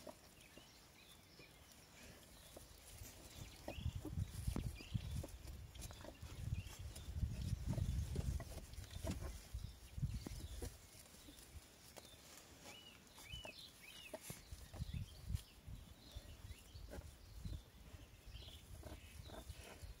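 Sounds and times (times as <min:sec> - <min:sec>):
puppies rustling in straw: 0:00.0 - 0:20.0.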